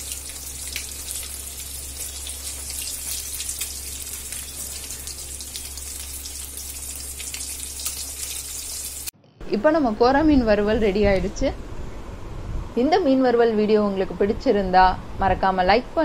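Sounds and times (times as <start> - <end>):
fish sizzling in hot oil: 0.0 - 9.1.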